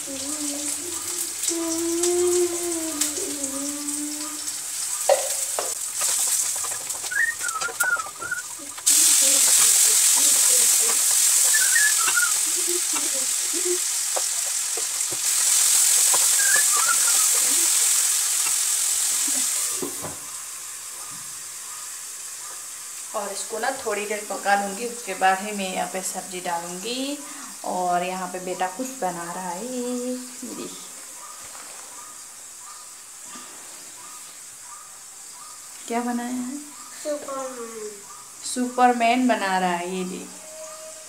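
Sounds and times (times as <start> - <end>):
food sizzling in oil: 0.0 - 31.0, 31.6 - 41.0
spatula scraping and stirring: 5.2 - 18.6.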